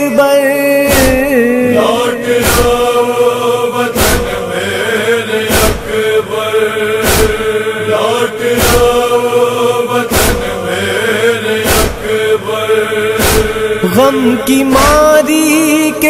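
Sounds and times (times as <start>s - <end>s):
sharp beats: 0.9s - 3.1s
male chorus chanting: 0.9s - 16.0s.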